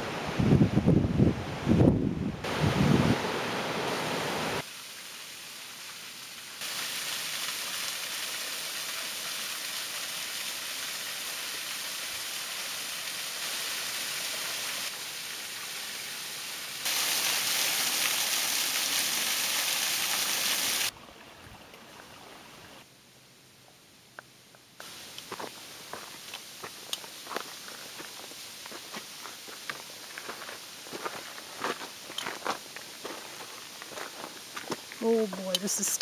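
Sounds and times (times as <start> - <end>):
water rushing over spillway: 2.5 - 21.0.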